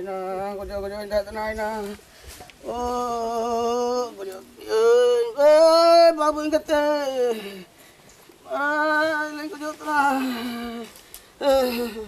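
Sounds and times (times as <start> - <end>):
person singing long held notes: 2.6 - 7.7, 8.5 - 12.0.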